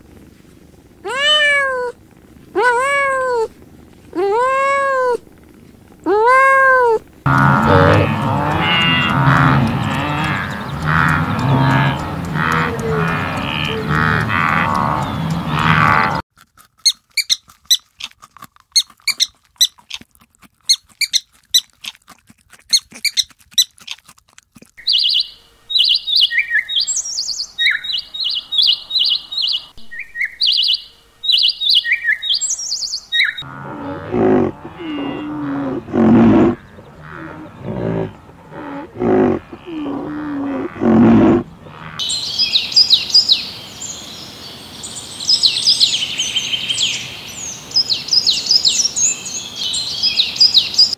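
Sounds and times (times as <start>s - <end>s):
low drawn-out animal calls: 6.0s - 16.2s, 33.2s - 42.9s
dense high bird calls: 7.3s - 16.2s, 24.8s - 50.9s
sharp clicks: 7.3s - 16.2s.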